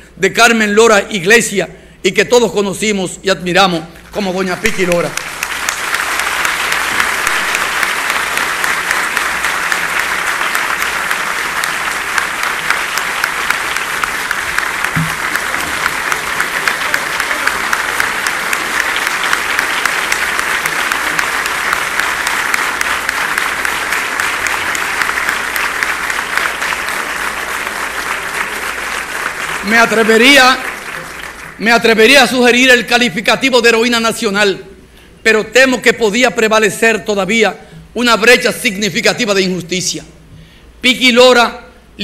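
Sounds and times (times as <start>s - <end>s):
audience applauding: 4.6s - 32.4s.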